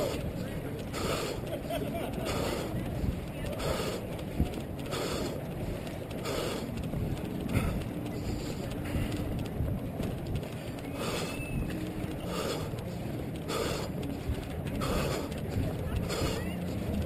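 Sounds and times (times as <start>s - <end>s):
muffled rumble and rattle of camera: 0.0s - 17.0s.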